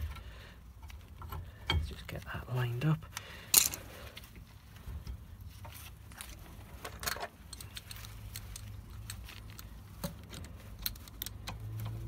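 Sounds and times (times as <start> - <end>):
metallic clicks and clinks: 3.5 - 3.9, 6.2 - 12.0.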